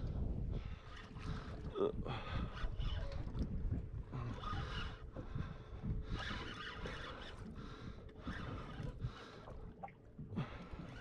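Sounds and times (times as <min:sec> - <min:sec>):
water noise: 0:00.0 - 0:11.0
wind: 0:00.0 - 0:11.0
fishing reel whirring: 0:06.1 - 0:07.5, 0:08.2 - 0:09.3.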